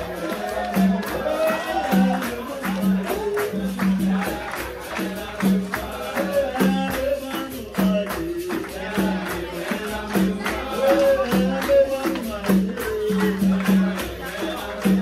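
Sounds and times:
hand clapping: 0.0s - 15.0s
hand drum rhythm: 0.0s - 15.0s
pandeiro: 0.0s - 15.0s
people singing: 0.0s - 15.0s.

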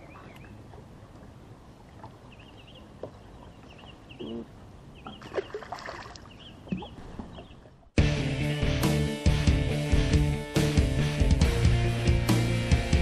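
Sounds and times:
small bird chirping: 5.0s - 5.6s.

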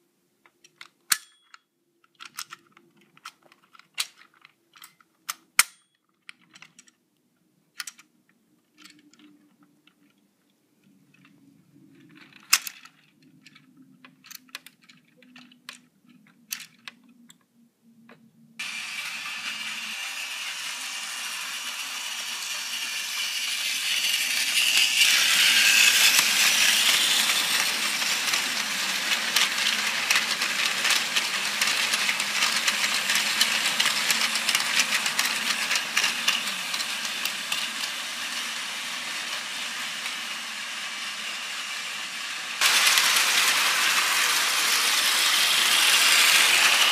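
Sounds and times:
plastic toy parts clicking: 0.4s - 7.0s, 7.7s - 10.2s, 10.8s - 17.5s, 22.1s - 41.0s
toy train whirring on track: 18.6s - 46.9s.

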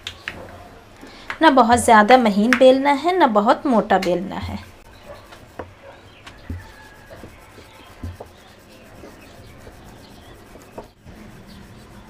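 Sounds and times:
rolling pin rubbing on dough: 1.5s - 12.0s
rolling pin knocks: 5.3s - 9.3s.

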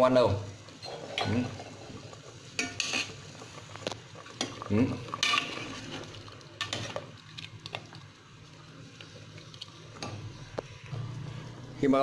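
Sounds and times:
metal ladle stirring in pot: 2.6s - 3.2s, 4.2s - 8.0s.

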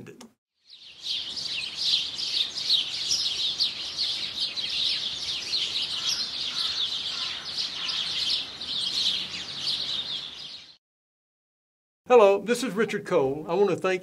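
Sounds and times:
small songbirds chirping: 0.6s - 10.8s.

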